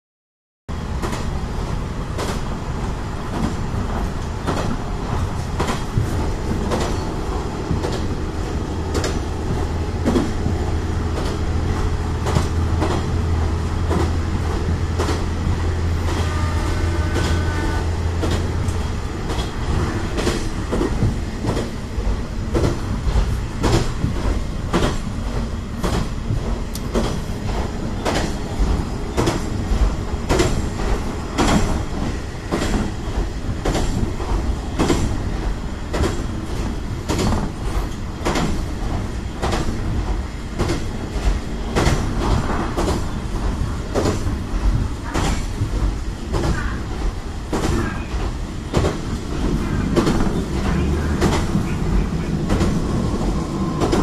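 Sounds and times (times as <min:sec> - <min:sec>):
railcar rumbling: 0:00.7 - 0:54.0
wheels clicking over rail joints: 0:35.9 - 0:54.0.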